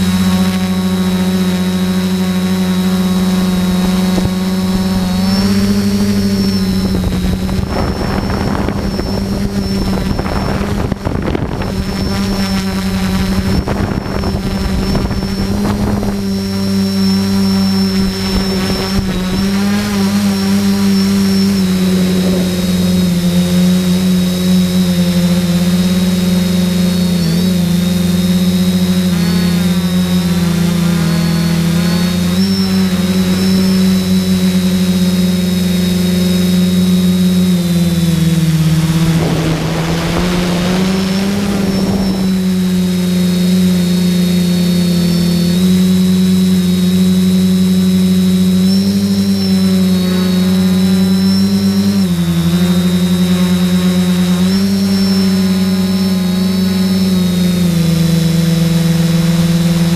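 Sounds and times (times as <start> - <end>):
quadcopter motors droning: 0.0 - 59.9.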